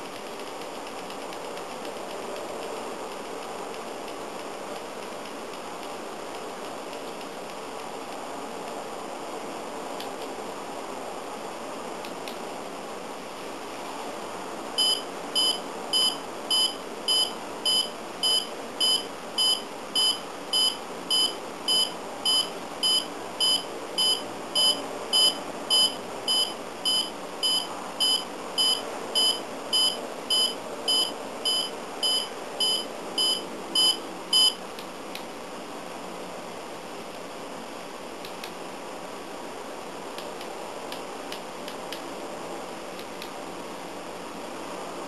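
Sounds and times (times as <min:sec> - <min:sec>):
alarm clock beeping: 0:14.8 - 0:34.6.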